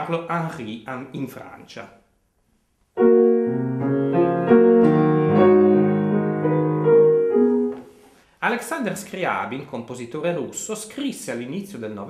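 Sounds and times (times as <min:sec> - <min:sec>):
grand piano chords: 0:03.0 - 0:08.0.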